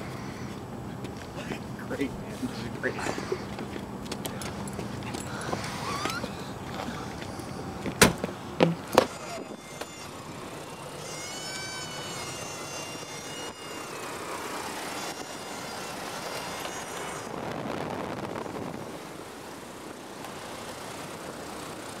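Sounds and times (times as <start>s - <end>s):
airplane engine drone: 0.0s - 22.0s
high wavering whine: 0.0s - 22.0s
sharp knocks: 7.9s - 9.9s.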